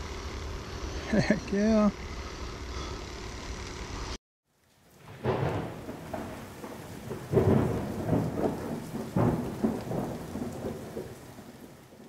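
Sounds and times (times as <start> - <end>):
steady rain: 4.5 - 12.0
thunder rumbling: 4.9 - 12.0.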